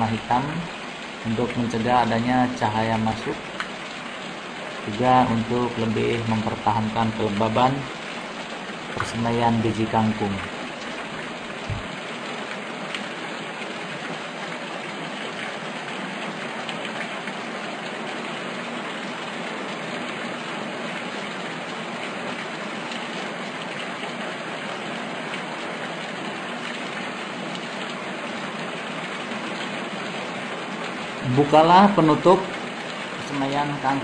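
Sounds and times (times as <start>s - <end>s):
low thump: 11.6s - 11.9s.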